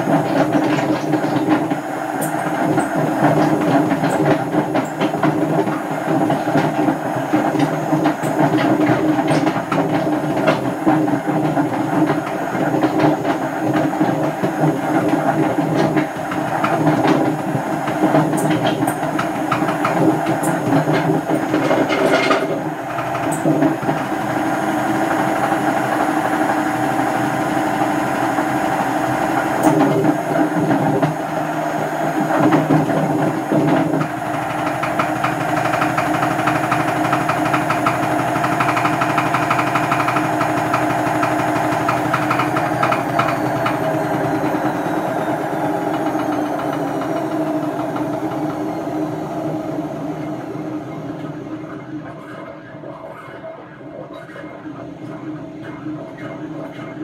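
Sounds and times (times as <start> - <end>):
washing machine drum rumbling: 0.0 - 51.8
whine falling in pitch: 16.2 - 52.1.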